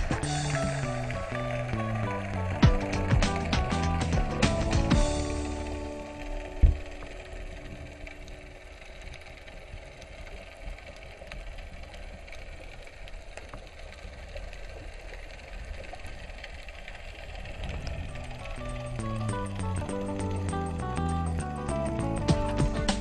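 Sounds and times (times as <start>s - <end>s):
underwater low rumble: 0.0s - 23.0s
faint clicks: 5.3s - 21.1s.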